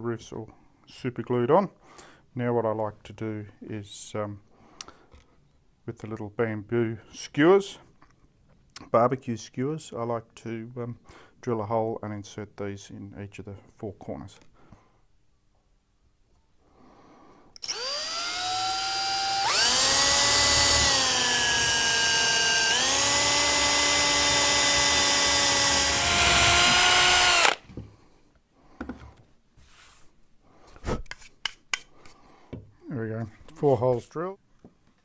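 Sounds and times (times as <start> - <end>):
cordless drill boring into wood: 17.6 - 27.7.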